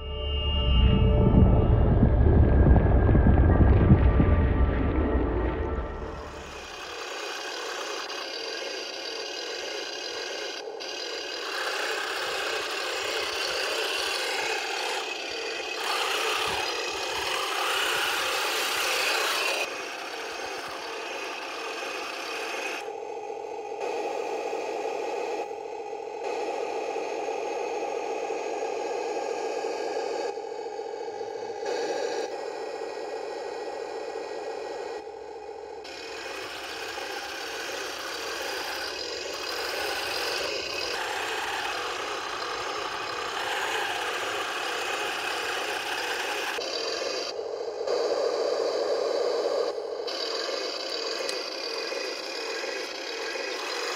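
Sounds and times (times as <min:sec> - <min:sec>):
toy tank tracks rattling on gravel: 0:06.4 - 0:22.8, 0:36.0 - 0:47.1, 0:50.1 - 0:53.9.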